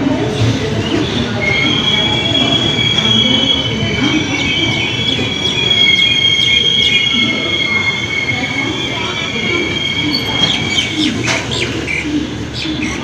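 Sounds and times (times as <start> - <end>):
rumble of train coaches: 0.0 - 13.0
train wheels squealing: 0.8 - 11.8.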